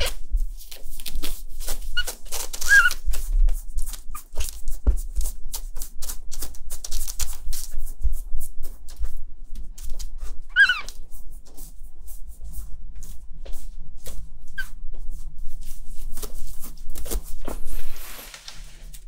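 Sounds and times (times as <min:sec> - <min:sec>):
pet pad crinkling: 0:00.0 - 0:07.8
kitten mewing: 0:10.5 - 0:10.9.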